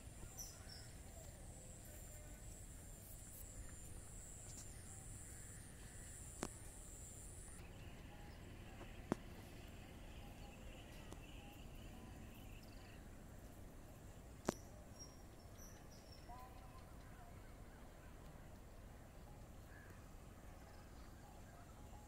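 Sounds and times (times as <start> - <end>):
insects chirring: 0.0 - 13.0
insect high-pitched whine: 0.0 - 13.1
low outdoor rumble: 0.0 - 22.0.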